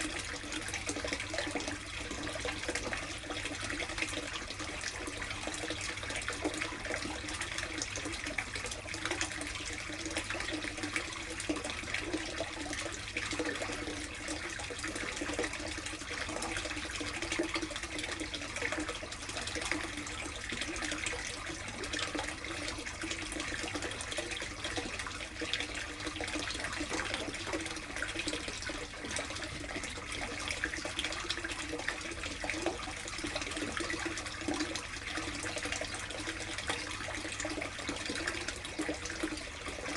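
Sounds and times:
water running and splashing: 0.0 - 39.9.

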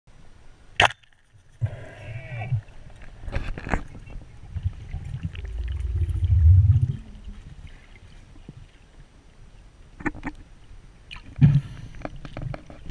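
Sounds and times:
low rumble of moving water: 0.1 - 12.9
wavering gurgle: 1.6 - 9.0.

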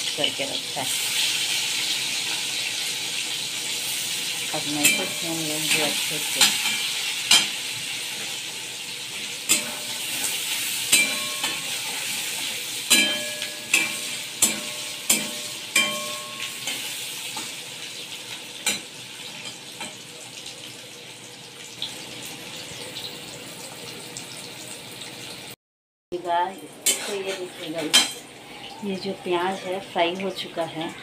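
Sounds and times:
onions sizzling in oil: 0.0 - 25.6, 26.2 - 31.0
metal spatula scraping a pan: 3.8 - 17.9, 26.8 - 28.2.

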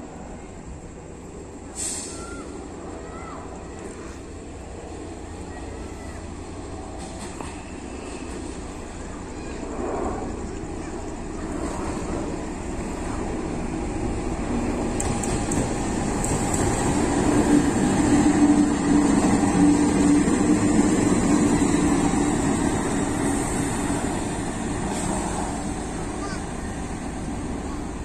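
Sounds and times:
locomotive engine drone: 0.0 - 28.0
rail rumble: 0.0 - 28.0.

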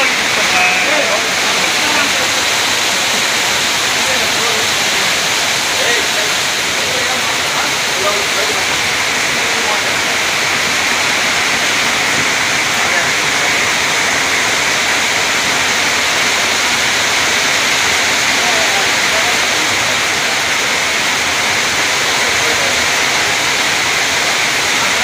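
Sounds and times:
heavy rain falling: 0.0 - 25.0
runoff pouring and splashing: 0.0 - 25.0.

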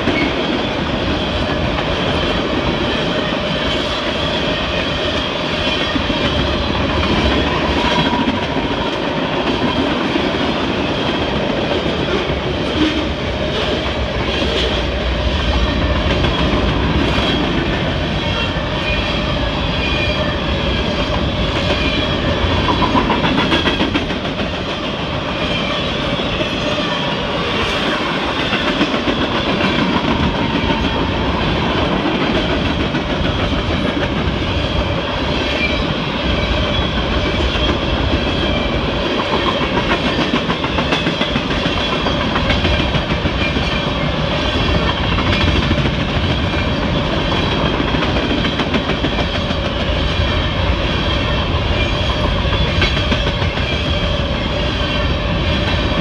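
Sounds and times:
freight train cars rolling past: 0.0 - 56.0.

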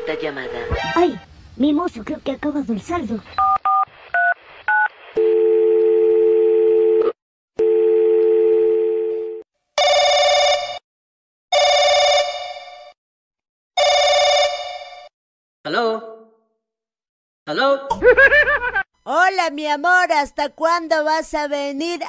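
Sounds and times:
telephone ringback tones: 5.2 - 10.8, 11.6 - 12.4
telephone rings: 7.6 - 10.8, 11.5 - 13.0, 13.8 - 15.1.

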